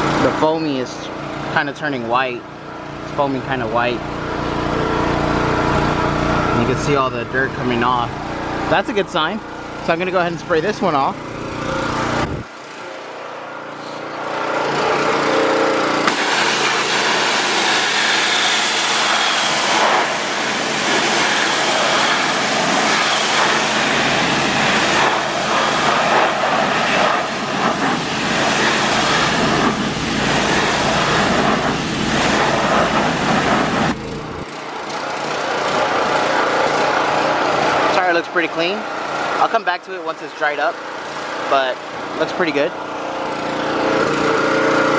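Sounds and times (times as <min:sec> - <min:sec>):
pressure washer engine hum: 0:00.0 - 0:44.9
pressure washer spraying water: 0:14.4 - 0:39.3.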